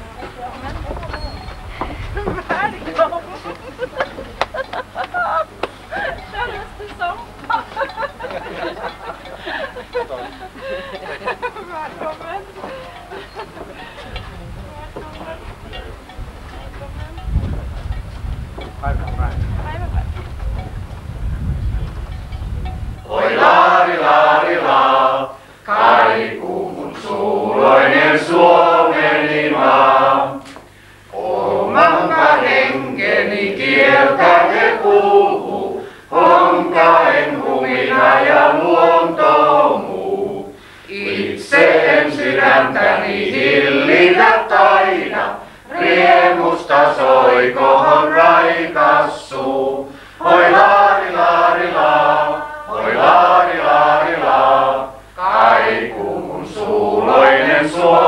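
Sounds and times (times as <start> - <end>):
group singing unaccompanied: 5.9 - 14.2, 23.0 - 58.0.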